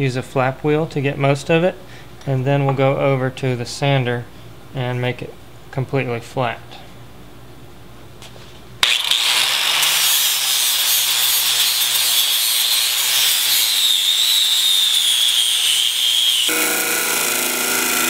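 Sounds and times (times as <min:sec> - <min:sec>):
angle grinder grinding metal: 0:08.8 - 0:18.0
disc sander motor hum: 0:11.1 - 0:18.0.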